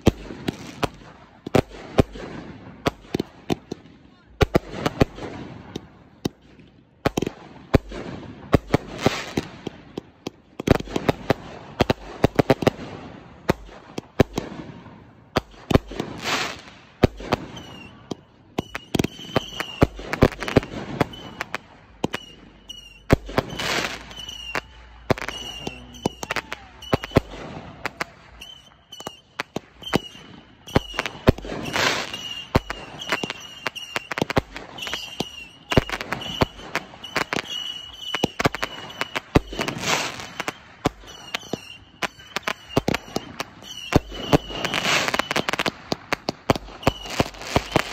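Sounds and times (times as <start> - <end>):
fireworks bangs and pops: 0.0 - 47.9
hissing crackle of fireworks: 0.0 - 47.9.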